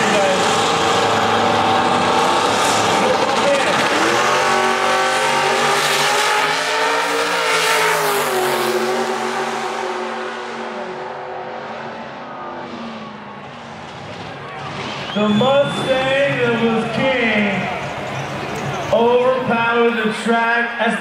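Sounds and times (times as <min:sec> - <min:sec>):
drag car engines at full throttle: 0:00.0 - 0:21.0.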